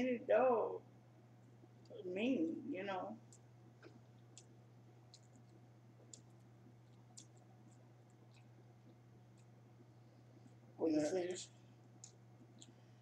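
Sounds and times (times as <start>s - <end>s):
low steady hum: 0.0s - 13.0s
chewing: 3.2s - 13.0s.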